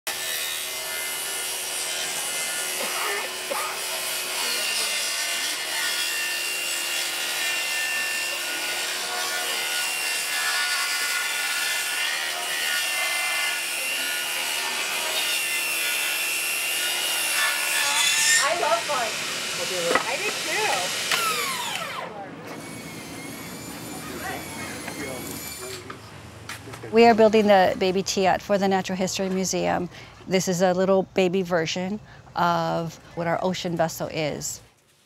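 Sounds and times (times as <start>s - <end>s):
saw cutting through wood: 0.1s - 26.0s.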